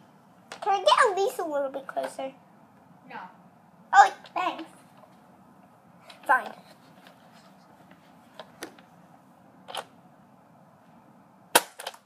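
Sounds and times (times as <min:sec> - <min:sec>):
toy blaster firing snap: 0:11.6 - 0:12.0.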